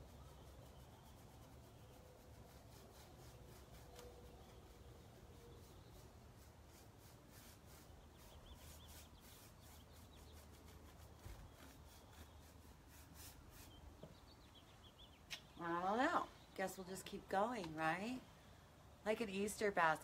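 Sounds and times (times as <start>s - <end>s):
paintbrush swishing on wood: 1.2s - 13.8s.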